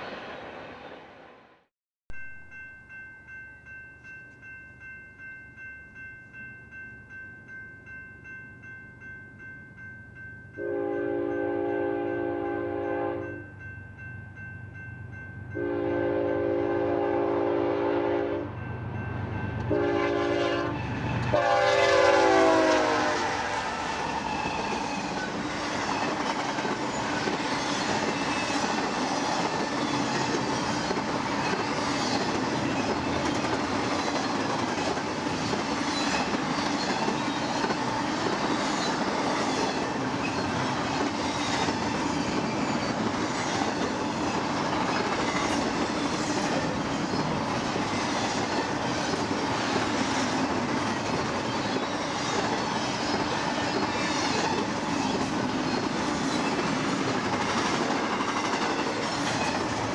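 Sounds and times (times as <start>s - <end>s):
railroad crossing bell ringing: 2.1s - 59.6s
locomotive air horn blasts: 10.6s - 13.4s, 15.6s - 18.6s, 19.7s - 23.8s
train wheels clacking on rails: 19.4s - 59.9s.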